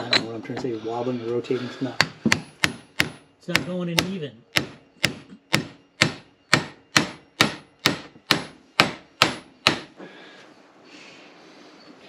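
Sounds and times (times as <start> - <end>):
hammer blows ringing on metal: 1.9 - 10.0.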